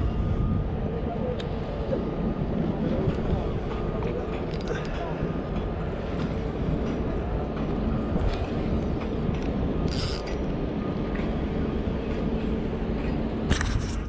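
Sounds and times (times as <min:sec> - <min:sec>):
fishing reel whirring: 0:09.9 - 0:10.4.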